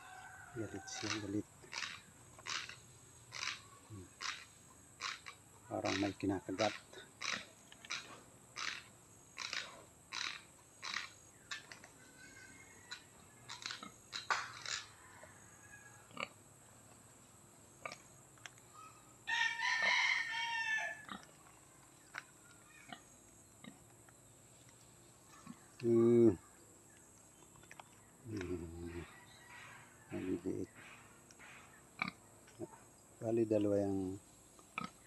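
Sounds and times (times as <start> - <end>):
rooster crowing: 0.0 - 1.4, 14.8 - 16.3, 19.2 - 21.2, 28.9 - 30.6
boar tooth clacks: 26.9 - 28.6.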